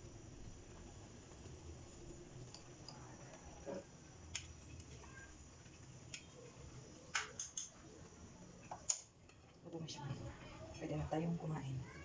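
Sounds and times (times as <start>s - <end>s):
chopsticks clicking on clay pot: 7.1s - 7.7s, 8.7s - 9.5s.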